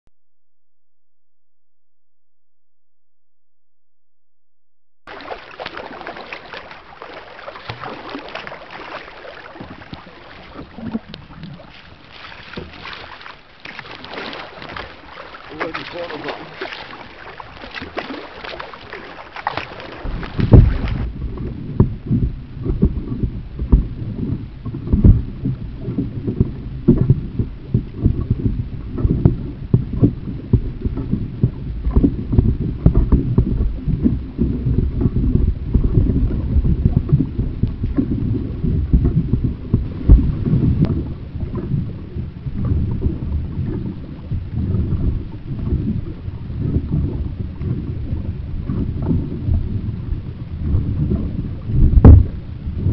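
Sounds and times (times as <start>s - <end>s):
muffled low rumble: 20.0s - 52.9s.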